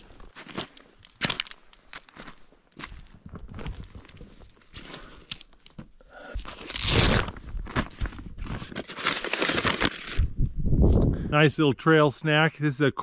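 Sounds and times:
backpack rustling and crunching: 0:00.0 - 0:10.2.

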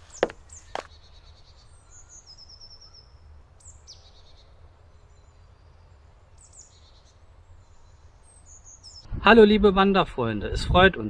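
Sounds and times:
footsteps on gravel: 0:00.0 - 0:01.0
songbird trill: 0:00.0 - 0:09.1.

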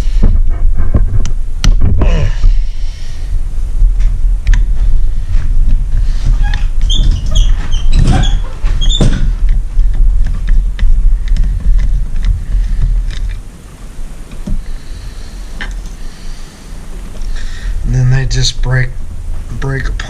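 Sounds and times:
low rumble: 0:00.0 - 0:20.0
short high squeaks: 0:06.3 - 0:09.3.

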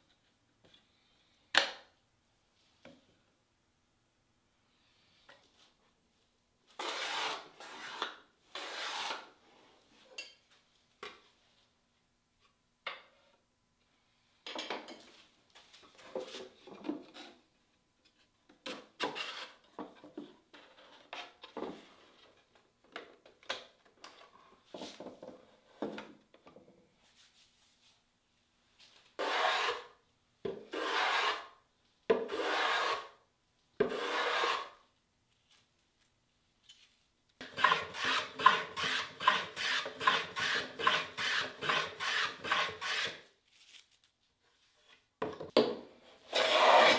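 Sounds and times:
hand plane shaving wood: 0:06.8 - 0:09.3, 0:29.2 - 0:29.9, 0:30.7 - 0:31.5, 0:32.3 - 0:33.2, 0:33.8 - 0:34.8, 0:37.4 - 0:43.2, 0:46.3 - 0:46.9.

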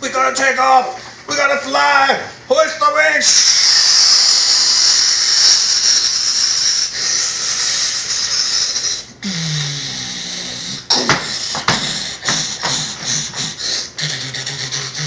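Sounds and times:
sharp knocks: 0:10.9 - 0:13.6.

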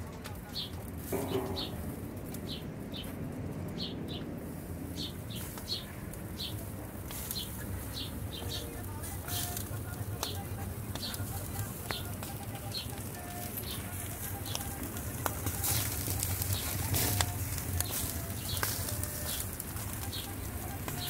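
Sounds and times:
small bird chirping: 0:05.0 - 0:06.6, 0:07.2 - 0:21.0.

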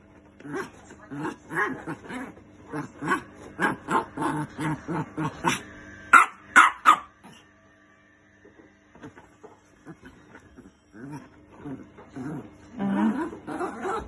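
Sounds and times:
small dog yapping: 0:06.1 - 0:07.1.

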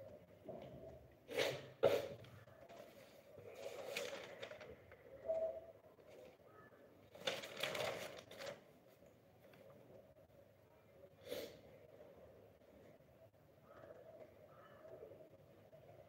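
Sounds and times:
paper sheets rustling: 0:02.7 - 0:05.0, 0:07.1 - 0:09.6.

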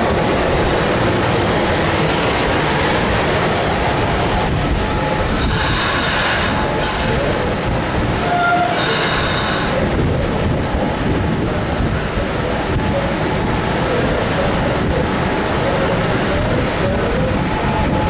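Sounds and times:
train wheels rumbling on rail: 0:00.0 - 0:18.0
train wheel squeal: 0:03.6 - 0:09.8.

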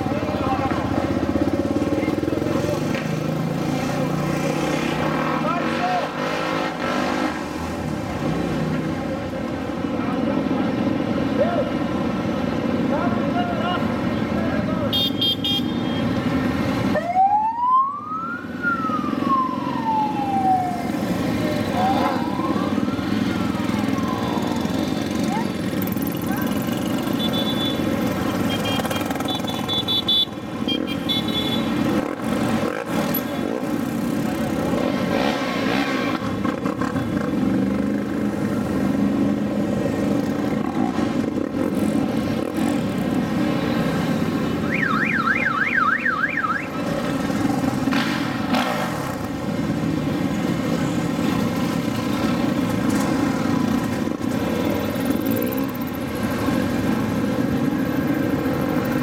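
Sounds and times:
vehicle engines passing: 0:00.0 - 0:59.0
warbling siren-like tone: 0:21.6 - 0:24.7.

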